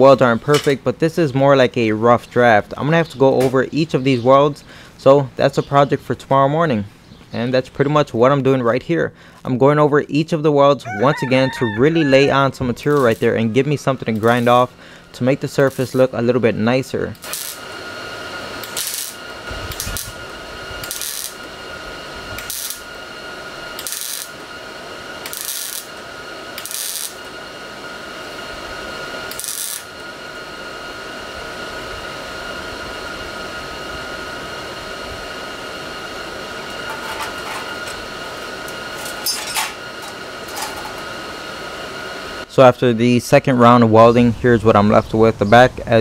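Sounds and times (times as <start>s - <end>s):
steady high whine: 0.0s - 46.0s
welding arc crackle: 12.8s - 13.3s, 14.2s - 14.8s, 15.5s - 16.2s, 17.1s - 30.1s, 36.5s - 41.1s.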